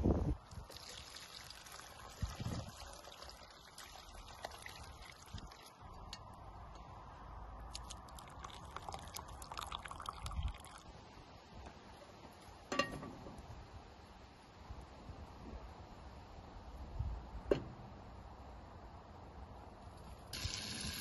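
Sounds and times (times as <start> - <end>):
broth pouring through strainer: 0.6 - 5.4, 8.1 - 10.8, 20.4 - 21.0.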